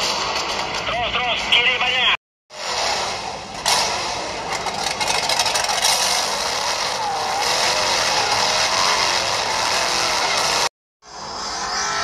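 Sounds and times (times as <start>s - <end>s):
revving engine sound effect: 2.5s - 12.0s.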